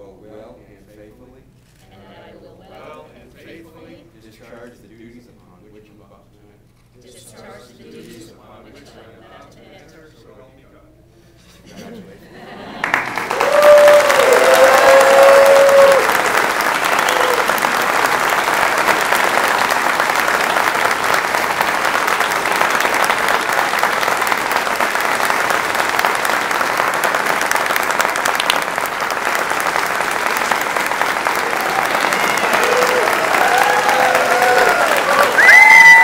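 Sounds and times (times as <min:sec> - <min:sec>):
audience applauding: 0:12.6 - 0:36.0.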